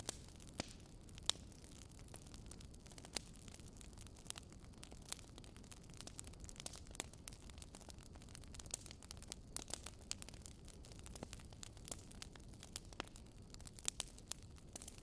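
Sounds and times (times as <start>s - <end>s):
charcoal grill crackling: 0.0s - 15.0s.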